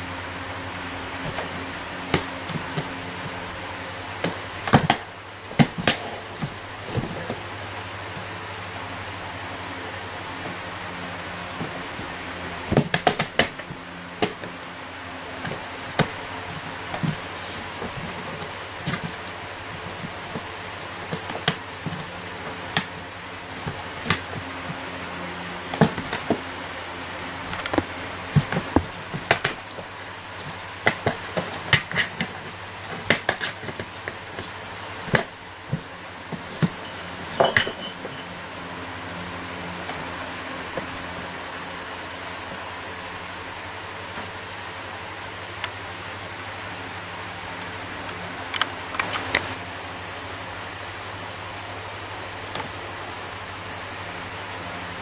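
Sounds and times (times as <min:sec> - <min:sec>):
background hiss and hum: 0:00.0 - 0:55.0
cat claws scratching cardboard box: 0:15.3 - 0:25.0, 0:27.5 - 0:37.4.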